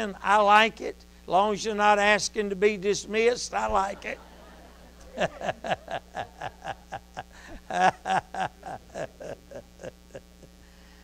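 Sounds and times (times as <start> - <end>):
person laughing: 3.9 - 10.6.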